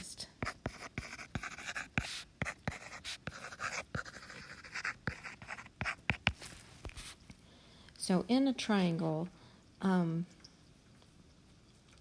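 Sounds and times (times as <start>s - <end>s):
stylus scratching strokes: 0.4s - 7.2s.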